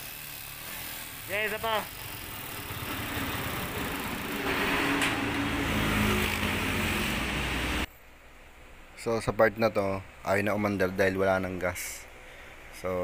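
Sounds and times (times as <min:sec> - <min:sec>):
motorcycle engine turning over: 0:01.9 - 0:07.3.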